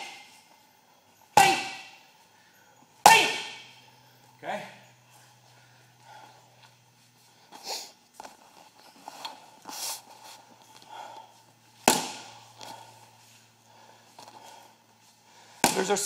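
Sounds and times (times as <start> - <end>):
punches hitting heavy bag: 1.4 - 2.0, 3.1 - 3.7, 11.9 - 12.3.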